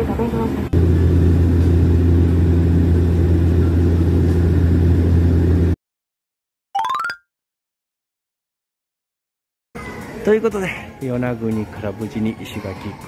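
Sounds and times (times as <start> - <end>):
propeller plane cabin drone: 0.1 - 5.8.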